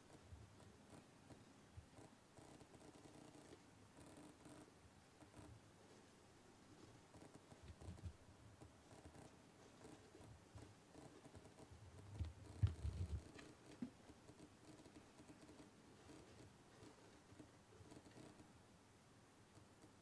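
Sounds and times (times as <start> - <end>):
soft low thumps: 12.0 - 14.0.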